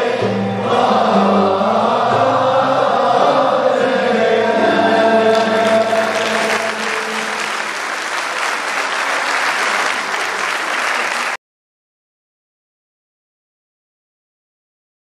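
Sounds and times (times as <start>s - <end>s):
choir singing held chord: 0.0s - 8.4s
audience applause: 5.3s - 11.4s.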